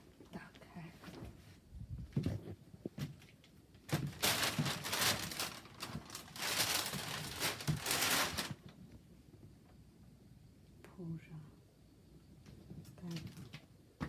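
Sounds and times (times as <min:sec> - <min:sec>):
mattress rustling and crinkling: 0:03.9 - 0:08.7.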